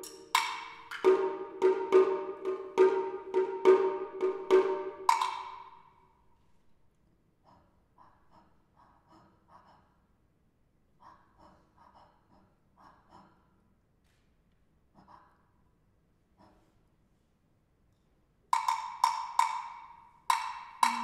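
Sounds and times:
wooden clapper strikes: 0.0s - 5.7s, 18.6s - 21.0s.

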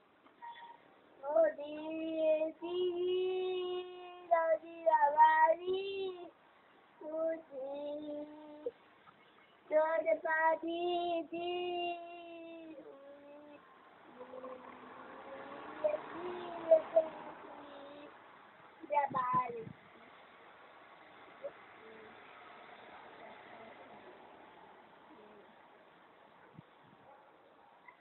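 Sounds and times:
girl singing unaccompanied: 0.4s - 6.4s, 7.0s - 8.8s, 9.6s - 18.2s, 18.8s - 20.2s.

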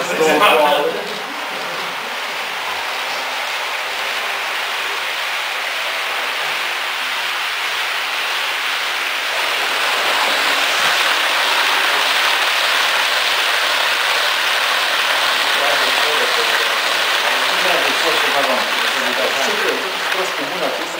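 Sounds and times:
model train wheels rattling on rails: 9.3s - 20.9s.

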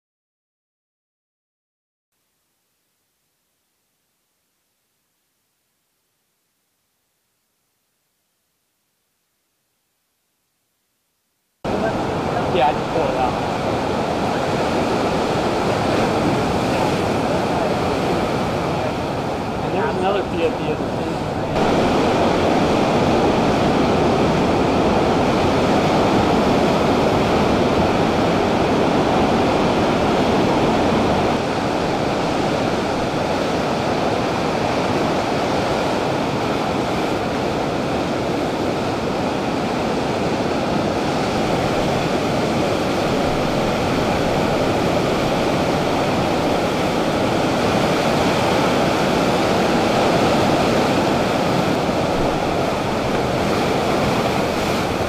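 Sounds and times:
waves breaking over rocks: 11.7s - 55.0s.

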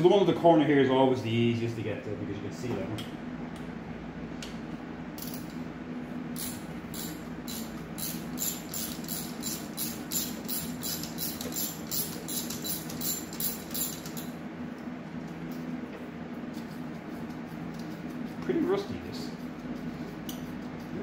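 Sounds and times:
steady low hum: 0.0s - 21.0s
ratchet wrench clicking: 6.4s - 14.3s.

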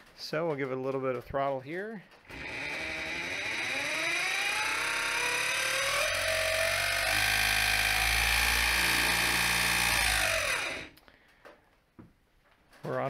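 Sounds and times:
deep motor hum: 2.3s - 10.9s
electric motor whine: 2.3s - 11.0s.

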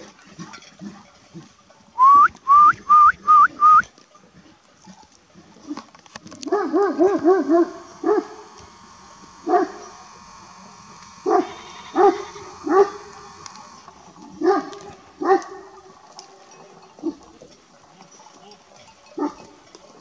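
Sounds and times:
dog barking deeply: 6.4s - 8.4s, 14.4s - 15.7s.

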